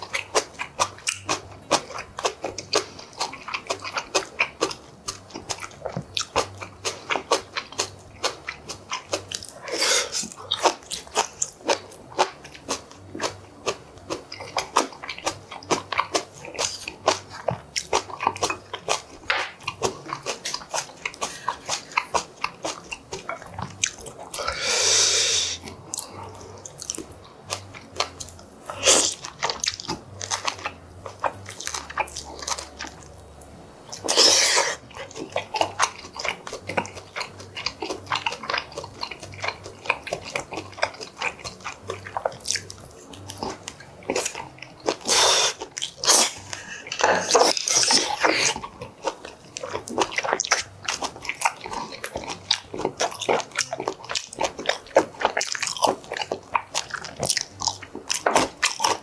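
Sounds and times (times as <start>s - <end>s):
person chewing food: 0.0s - 59.0s
slurps: 45.0s - 48.6s.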